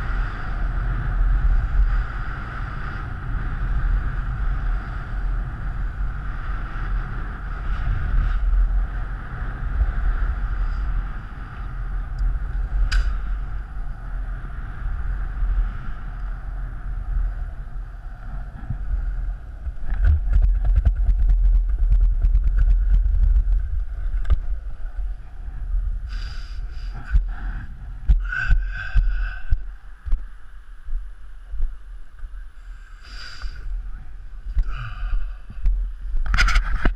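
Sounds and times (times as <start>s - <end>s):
skateboard wheels rolling on asphalt: 0.0s - 36.9s
wind rushing over microphone: 0.0s - 36.9s.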